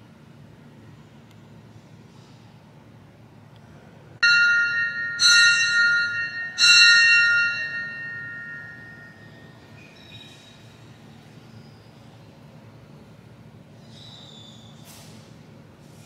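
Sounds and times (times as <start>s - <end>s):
bell ringing: 4.2s - 9.7s.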